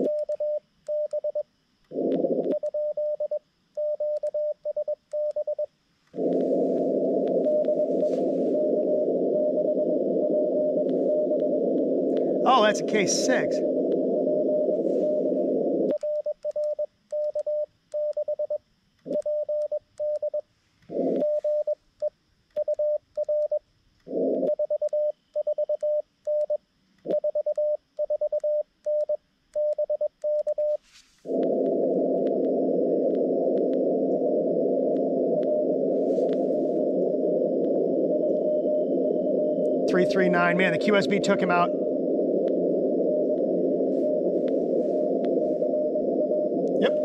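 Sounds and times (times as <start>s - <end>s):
morse code tone: 2.6s - 18.5s
radio receiver hiss: 6.1s - 16.0s, 20.8s - 21.7s, 30.7s - 47.0s.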